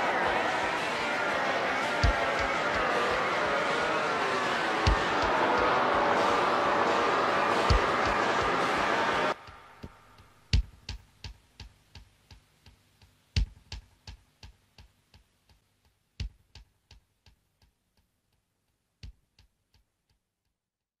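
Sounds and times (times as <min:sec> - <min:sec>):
sharp percussion hit with echoes: 0:00.0 - 0:10.7.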